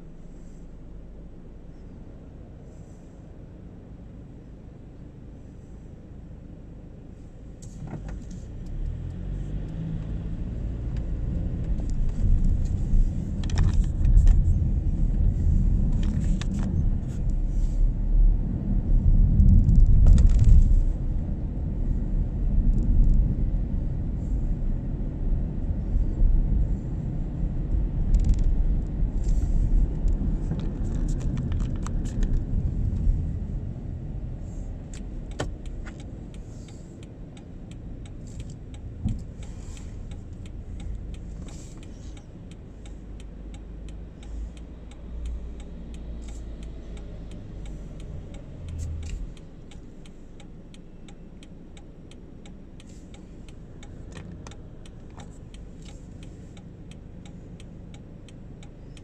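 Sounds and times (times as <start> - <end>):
car engine and road rumble: 0.0 - 59.0
light clicks and rattles: 10.9 - 17.7, 28.0 - 33.2.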